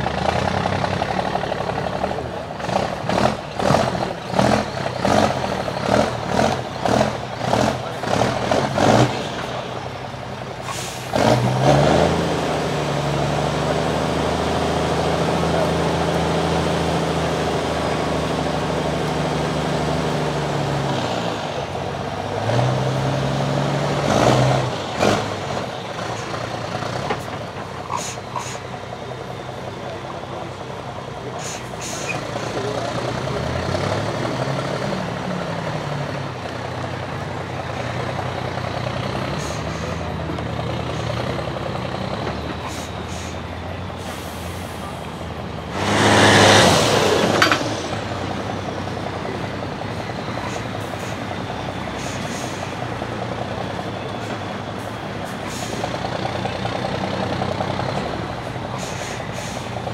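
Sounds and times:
diesel truck engine under load: 0.0 - 59.9.

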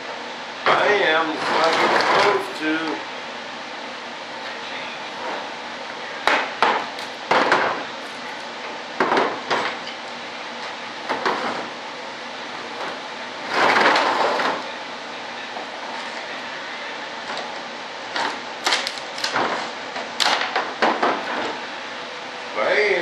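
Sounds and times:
plastic parts cracking: 18.6 - 19.4.

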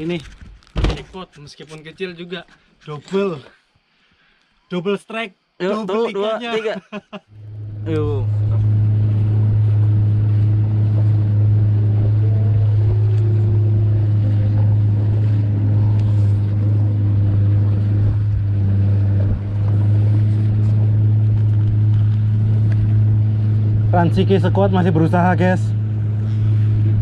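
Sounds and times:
boat engine low drone: 7.3 - 27.0.

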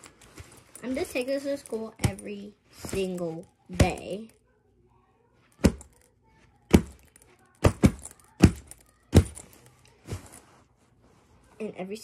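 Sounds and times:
hand patting a backpack: 6.7 - 10.4.

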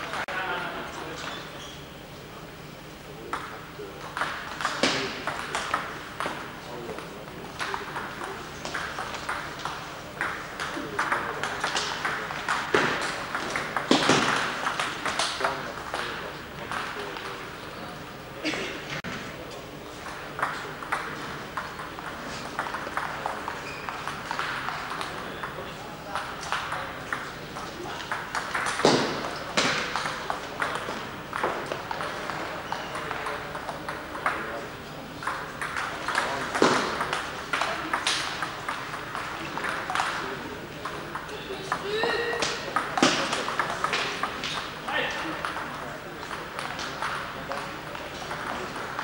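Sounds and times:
table tennis balls clicking: 3.3 - 16.0, 20.0 - 34.4, 35.2 - 40.2, 45.4 - 49.0.

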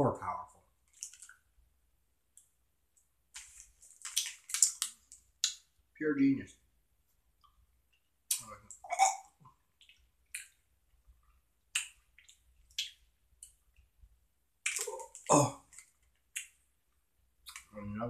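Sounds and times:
person chewing candy: 0.9 - 1.4, 3.4 - 5.6, 14.6 - 16.6.

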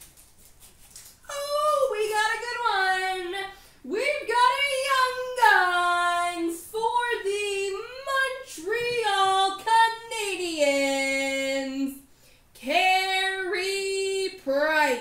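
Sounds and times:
high voice singing wordless notes: 1.3 - 12.0.

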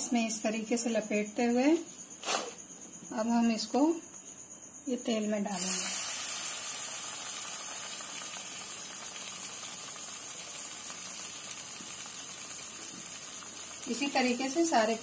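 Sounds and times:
deep-frying sizzle in oil: 5.5 - 15.0.

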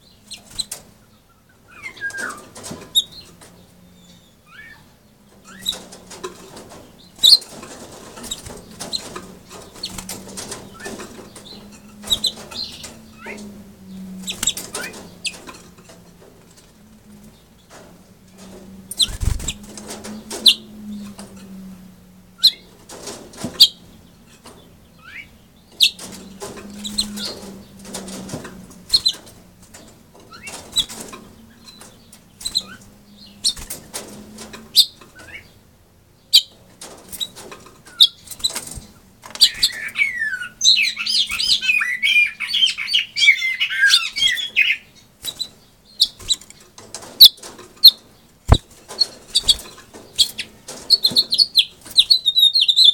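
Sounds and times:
finch singing warbling song: 0.0 - 5.9, 8.2 - 15.6, 37.9 - 46.6, 47.2 - 52.9
finch chirping: 0.0 - 15.6, 18.9 - 21.5, 22.4 - 22.8, 23.6 - 29.3, 30.3 - 33.7, 34.7 - 35.6, 36.2 - 52.9
bird moving about cage: 5.3 - 21.6, 22.7 - 24.7, 25.8 - 35.4, 36.5 - 40.0, 45.2 - 52.3.

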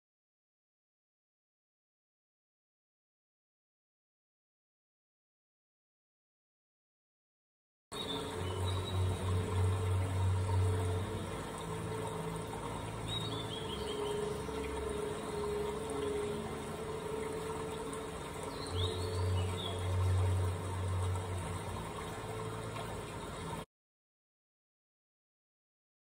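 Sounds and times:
noisy background: 8.0 - 23.6
steady low hum: 8.0 - 23.6.

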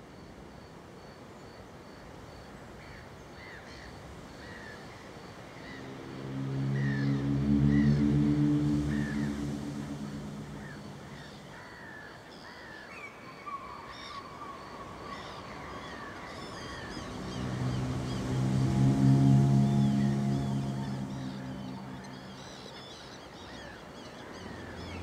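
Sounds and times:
sustained low synth chord: 5.5 - 11.7, 16.2 - 22.7.

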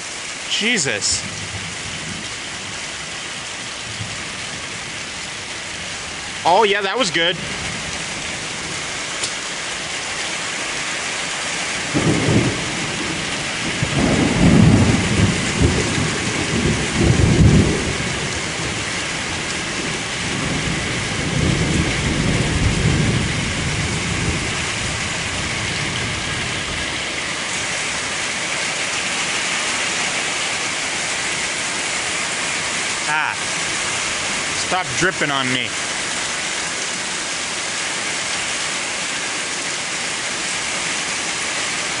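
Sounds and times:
steady rain: 0.0 - 42.0
thunder rumbling: 11.8 - 27.1.

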